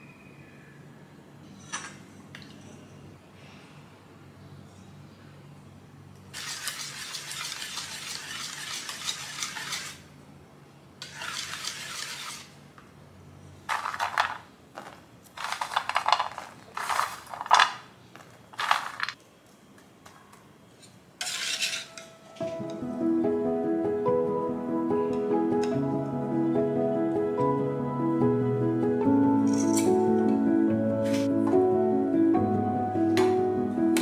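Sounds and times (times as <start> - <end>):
whisk beating in a metal bowl: 6.4 - 10.0, 11.1 - 12.5.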